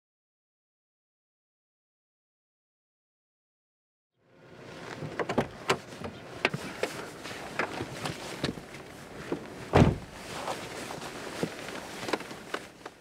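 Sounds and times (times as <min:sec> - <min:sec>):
clothing and bag rustling: 0:04.6 - 0:13.0
heavy thump: 0:09.7 - 0:10.2.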